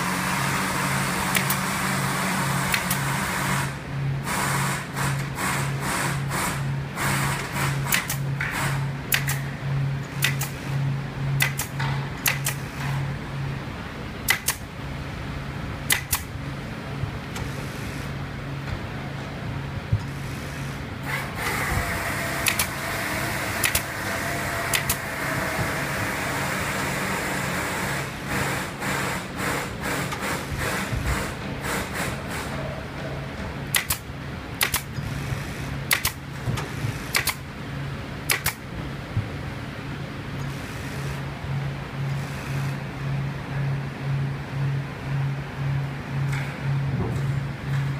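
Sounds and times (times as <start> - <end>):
high whine and hiss: 0.0 - 47.9
workshop machinery hum: 0.0 - 47.9
pneumatic staple gun clicks: 1.3 - 1.8, 2.7 - 3.2, 6.4 - 9.4, 10.1 - 10.6, 11.4 - 12.7, 14.3 - 14.6, 15.9 - 16.3, 21.1 - 22.8, 23.6 - 24.0, 24.7 - 25.1, 33.7 - 35.2, 35.9 - 37.4, 38.3 - 38.6.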